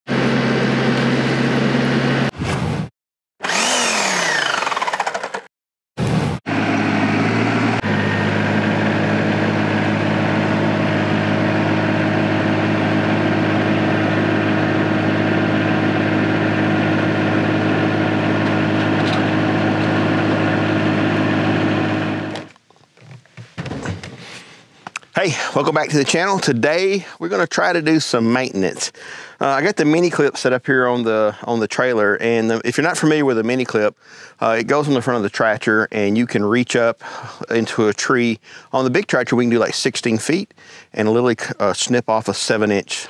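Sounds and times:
diesel tractor engine running: 0:00.1 - 0:02.3, 0:03.4 - 0:05.4, 0:06.5 - 0:22.5.

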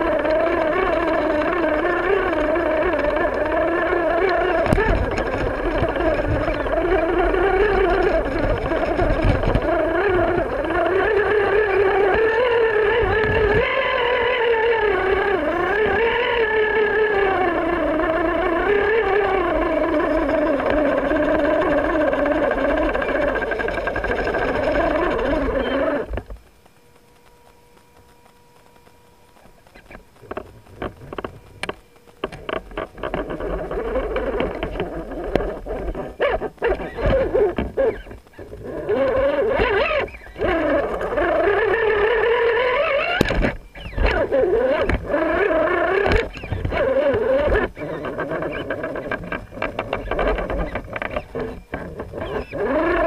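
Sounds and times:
toy car motor and gears whining: 0:00.0 - 0:53.0
clicks and knocks on rock: 0:00.2 - 0:12.3, 0:42.8 - 0:53.0.

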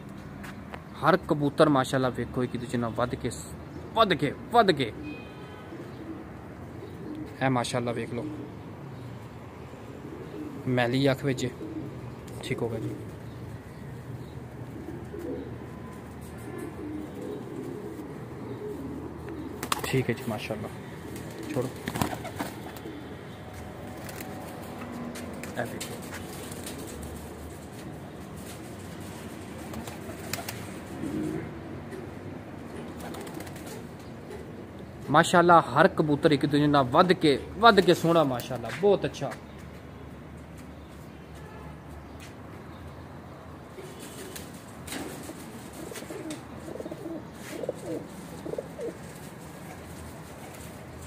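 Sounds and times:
pigeons cooing: 0:04.8 - 0:35.0, 0:43.7 - 0:51.0.

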